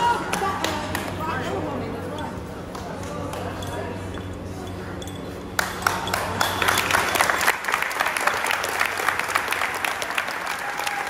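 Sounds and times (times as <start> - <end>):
people applauding: 5.6 - 11.0.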